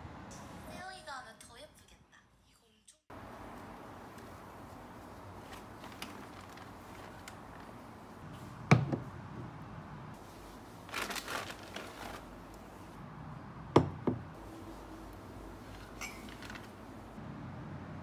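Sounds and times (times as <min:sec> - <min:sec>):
plastic wrapping crinkling: 0:04.1 - 0:08.0, 0:10.3 - 0:12.9, 0:15.6 - 0:17.0
glassware knocking on wooden table: 0:13.8 - 0:14.2.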